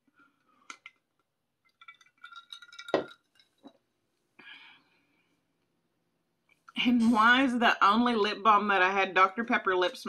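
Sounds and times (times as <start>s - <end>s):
tumbler clinking: 0.7s - 3.8s.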